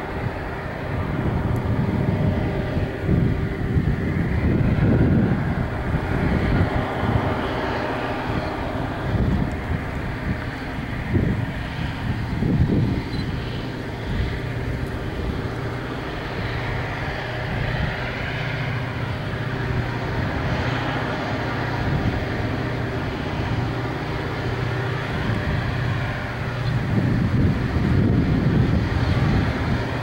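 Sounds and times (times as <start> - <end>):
distant freight locomotives droning: 0.0 - 30.0
wind gusts on microphone: 0.0 - 30.0.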